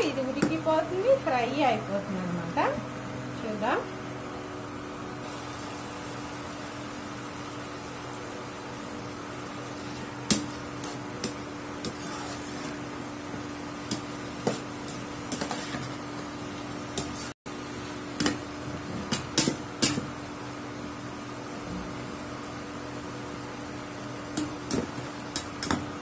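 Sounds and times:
stove cooling fan hum: 0.0 - 26.0
metal spoon scraping pan: 11.8 - 12.9, 14.5 - 16.0.

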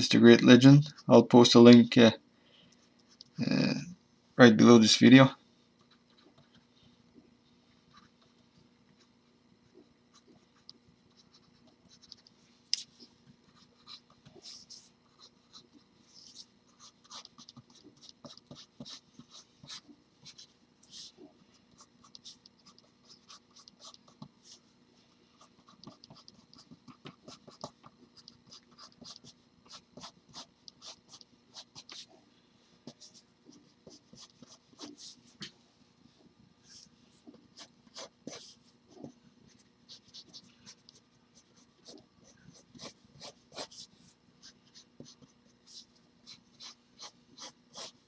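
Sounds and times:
pencil scratching on paper: 13.5 - 24.6, 25.4 - 32.1, 32.9 - 35.5, 36.7 - 48.0.

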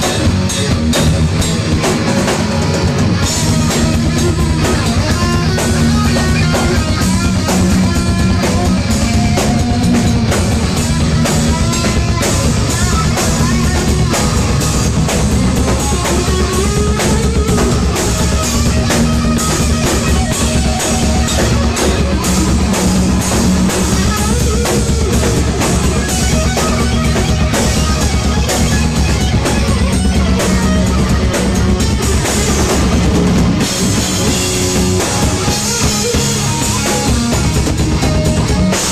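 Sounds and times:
distorted electric guitar: 0.0 - 38.9
heavy metal band playing live: 0.0 - 38.9
pounding bass drum: 0.0 - 38.9.

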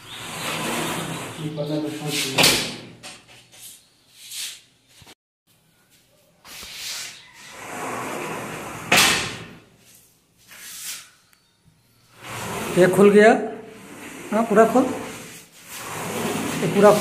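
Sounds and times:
sliding window rolling: 0.0 - 2.8, 7.5 - 9.7, 12.2 - 17.0.

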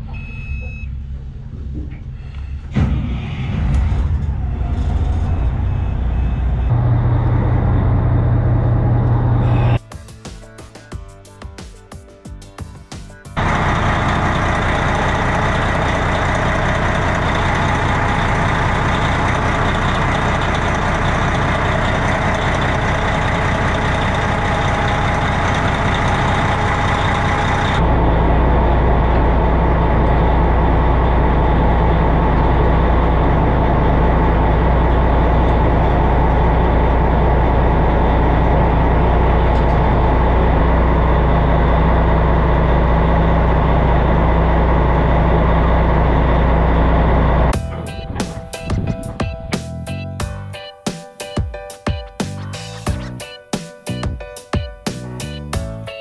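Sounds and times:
boat diesel engine running: 4.4 - 9.8, 13.4 - 50.2.

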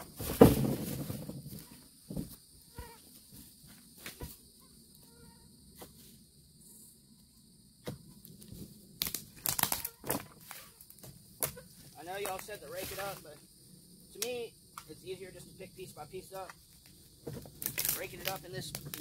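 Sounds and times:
mosquitoes whining: 2.6 - 3.1, 4.0 - 5.6
plastic trash bag crackling: 17.5 - 19.0.

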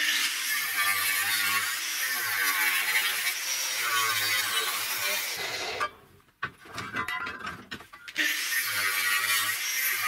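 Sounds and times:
angle grinder cutting steel: 0.0 - 6.0, 8.0 - 10.0.

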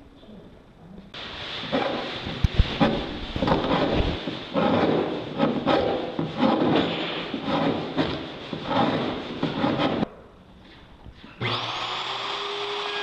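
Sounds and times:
hand file rasping on wood: 3.6 - 10.0
router whining: 11.4 - 13.0.

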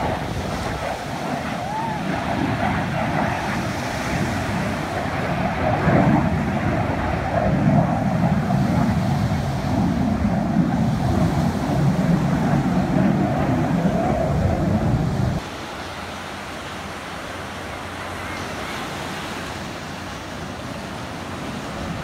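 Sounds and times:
jet fighter engine: 0.0 - 22.0
surf: 0.0 - 22.0
wind on microphone: 0.0 - 22.0.

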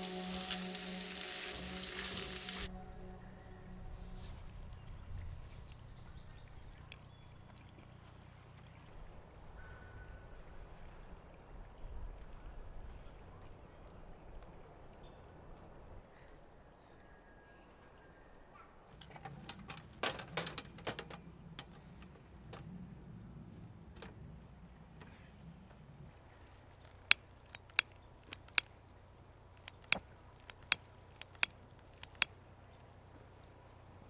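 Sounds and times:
kindling fire crackling: 0.0 - 2.7.

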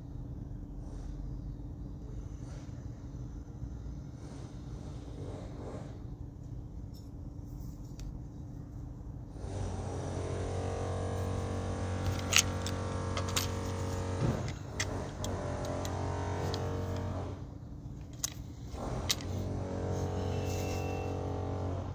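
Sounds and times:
mechanical motor hum: 9.2 - 21.9.

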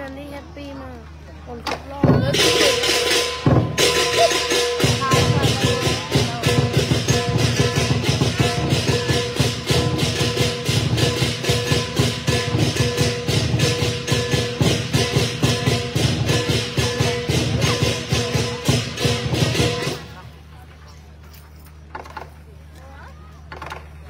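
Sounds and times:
cymbals clashing: 2.0 - 20.4
large drum fast beat: 2.0 - 20.6.

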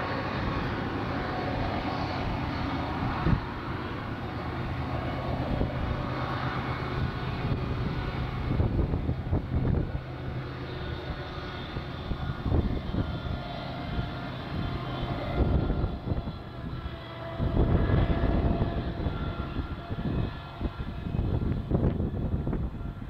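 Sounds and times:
distant diesel locomotives rumbling: 0.0 - 23.0.

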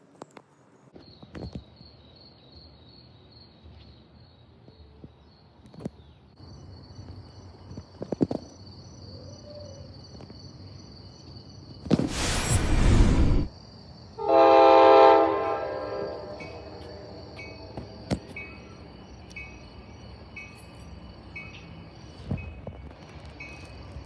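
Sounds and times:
loud rushing noise: 12.0 - 13.5.

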